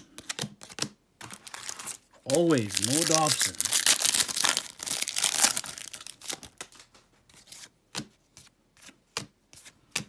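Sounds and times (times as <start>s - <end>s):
foil wrapper rustling: 1.3s - 6.8s.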